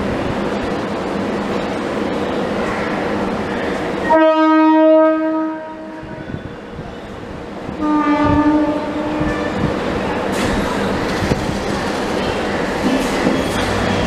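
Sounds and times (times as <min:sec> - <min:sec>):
train horn blasts: 0:04.1 - 0:06.3, 0:07.8 - 0:09.6.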